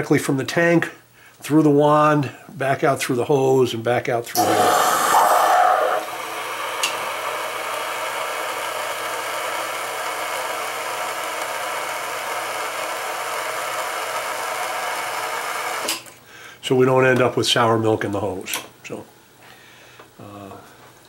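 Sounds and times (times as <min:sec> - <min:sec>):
espresso steam wand hissing: 0:04.4 - 0:15.9.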